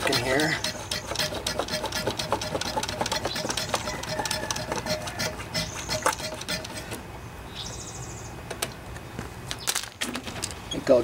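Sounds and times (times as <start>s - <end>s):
hand pump clicking: 0.0s - 7.0s.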